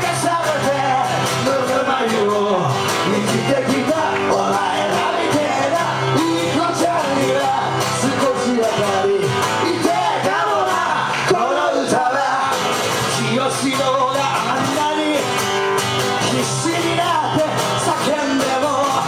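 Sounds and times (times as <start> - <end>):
man singing: 0.0 - 15.4, 16.2 - 19.0
acoustic guitar: 0.0 - 19.0.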